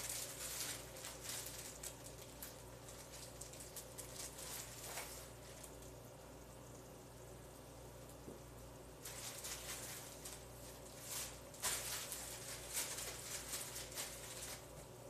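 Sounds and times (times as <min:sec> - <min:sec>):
plastic bag crinkling: 0:00.0 - 0:06.0, 0:09.0 - 0:14.9
steady low hum: 0:00.0 - 0:15.0.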